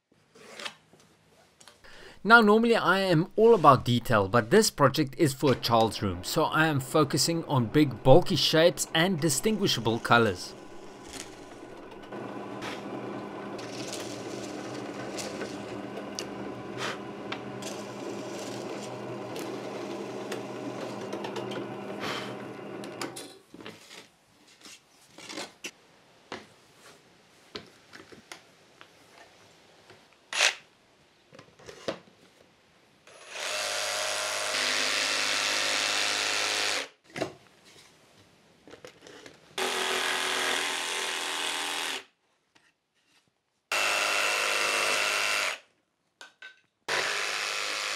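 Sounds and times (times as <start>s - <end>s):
jigsaw cutting plywood: 7.8s - 23.2s, 33.1s - 36.9s, 39.6s - 42.0s, 43.7s - 45.6s, 46.9s - 47.9s
drill press boring plywood: 7.9s - 23.2s, 33.1s - 36.8s, 39.6s - 42.0s, 43.7s - 45.6s, 46.9s - 47.9s.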